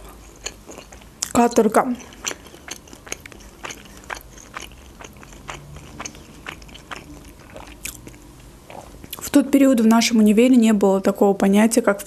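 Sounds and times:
person chewing crusty bread: 0.0 - 9.2.

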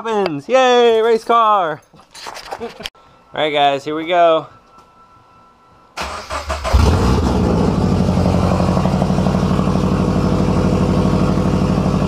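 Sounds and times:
car engine starter cranking: 6.0 - 7.3
car engine loud idle: 6.7 - 12.0.

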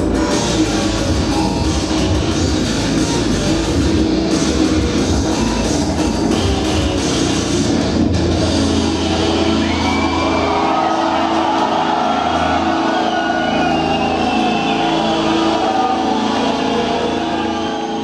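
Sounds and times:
metal band held chords and synth: 0.0 - 13.7.

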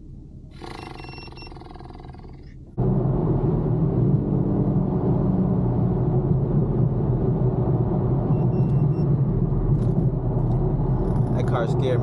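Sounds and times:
car engine cruising in cabin: 0.0 - 12.0
tyre and road noise: 2.6 - 12.0.

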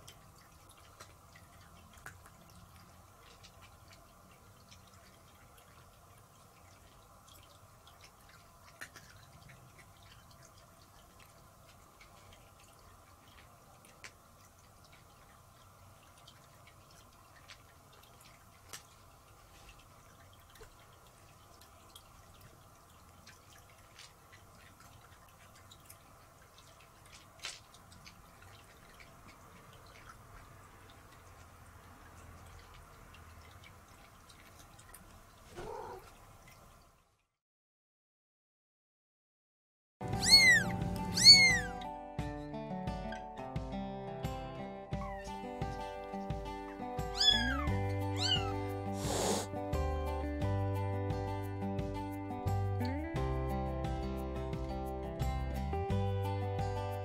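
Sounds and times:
faint steady hum: 0.0 - 37.1.

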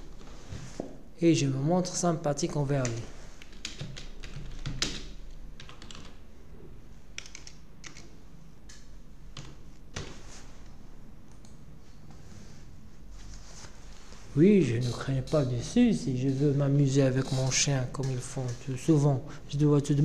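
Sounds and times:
computer keyboard typing: 2.8 - 6.2, 7.1 - 8.1.

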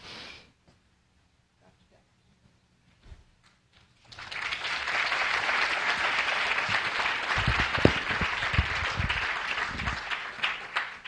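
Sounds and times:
audience applauding: 4.0 - 11.0
microphone handling thumps: 7.4 - 9.9.

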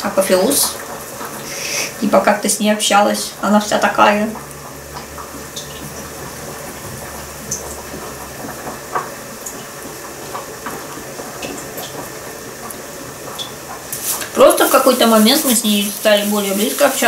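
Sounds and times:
steady kitchen hiss: 0.0 - 17.0.

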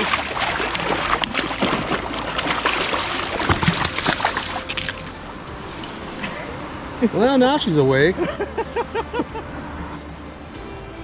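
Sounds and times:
fish splashing at surface: 0.0 - 5.2.

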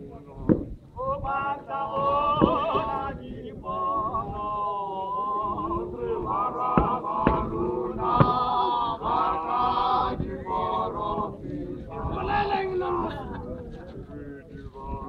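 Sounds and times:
men chanting a hymn: 0.0 - 15.0
short sharp thumps: 0.4 - 0.8.

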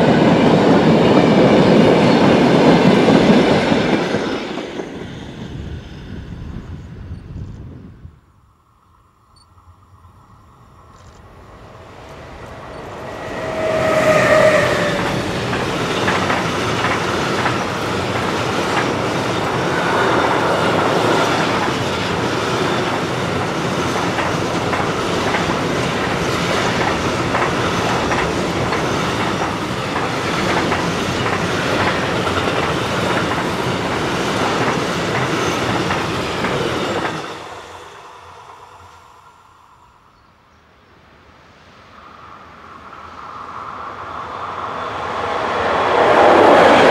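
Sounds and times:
electric locomotive passing: 0.0 - 46.9
train wheels clattering over joints: 13.1 - 19.7, 21.3 - 37.4.

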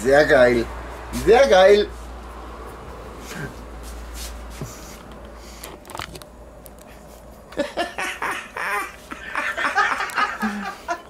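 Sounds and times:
laughter in short bursts: 7.6 - 11.0.

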